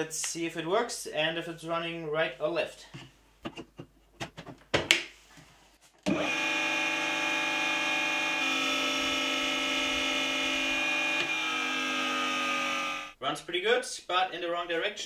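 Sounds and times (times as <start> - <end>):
electric motor humming: 6.1 - 13.2.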